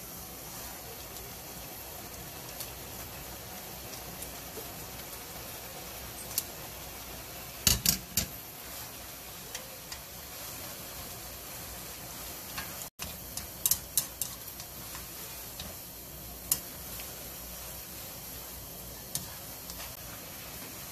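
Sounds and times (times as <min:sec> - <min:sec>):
food sizzling in a wok: 0:00.0 - 0:20.9
chopsticks clicking against pan: 0:06.3 - 0:06.5, 0:12.6 - 0:15.8, 0:16.4 - 0:16.7.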